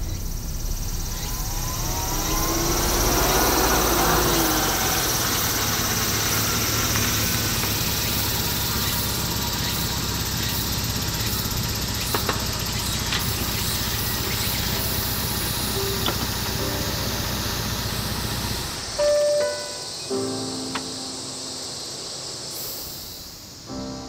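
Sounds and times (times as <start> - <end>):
car engine running at low revs: 0.0 - 19.0.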